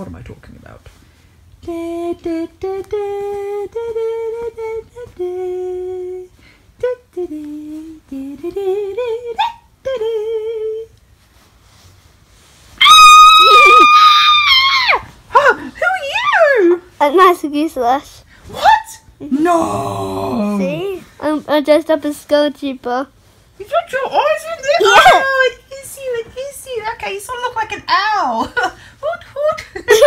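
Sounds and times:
person humming a tune: 1.7s - 10.9s
high sustained scream: 12.8s - 15.1s.

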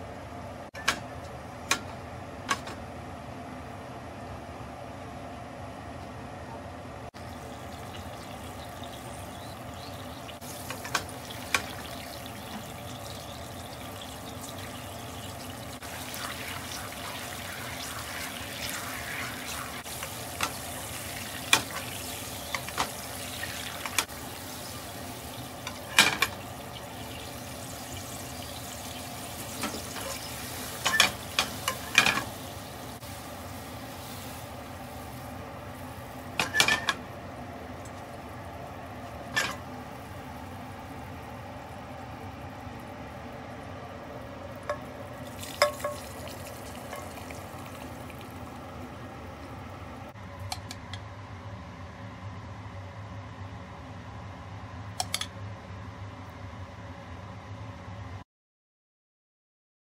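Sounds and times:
sauce bubbling in frying pan: 7.2s - 49.9s.

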